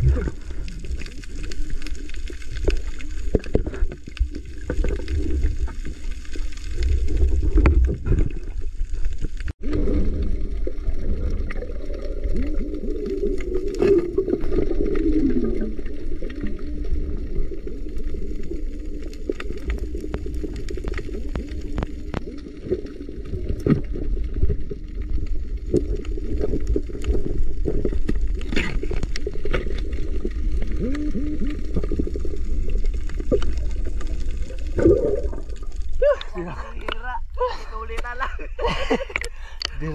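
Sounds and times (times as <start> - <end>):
bubbling water: 0.0 - 37.6
muffled underwater rumble: 0.0 - 39.9
sharp underwater clicks: 39.0 - 39.8.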